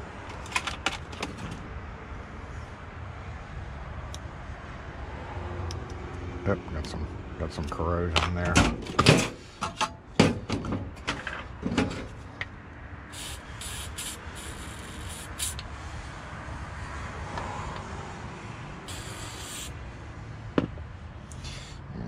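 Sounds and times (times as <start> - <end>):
aerosol spray hissing: 13.1 - 15.6, 18.9 - 19.8.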